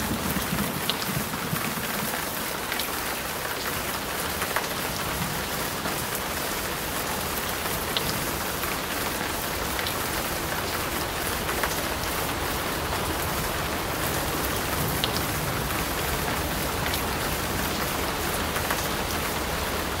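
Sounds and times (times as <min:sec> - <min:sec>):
rain on a hard surface: 0:00.0 - 0:20.0.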